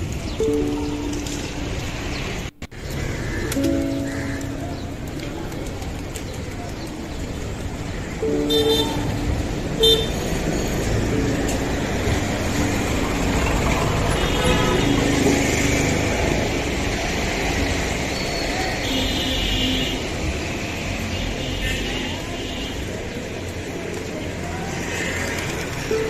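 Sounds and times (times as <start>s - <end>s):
street traffic: 0.0s - 26.0s
vehicle horns honking: 8.2s - 11.0s, 14.1s - 15.2s, 18.8s - 20.1s.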